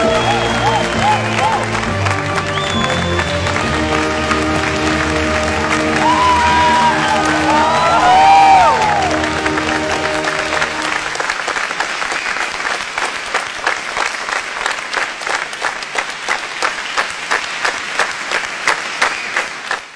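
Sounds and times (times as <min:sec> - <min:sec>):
music held notes: 0:00.0 - 0:11.2
audience applauding: 0:00.0 - 0:19.9.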